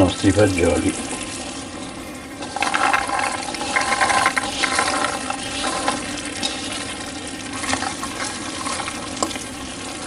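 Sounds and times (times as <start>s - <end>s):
beans pouring into pot: 2.4s - 9.4s.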